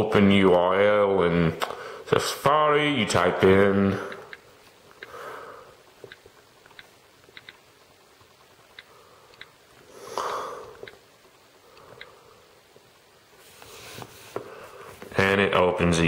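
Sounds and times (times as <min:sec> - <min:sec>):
on-screen keyboard clicks: 0:06.0 - 0:07.6
breaths or sniffs: 0:09.9 - 0:10.8.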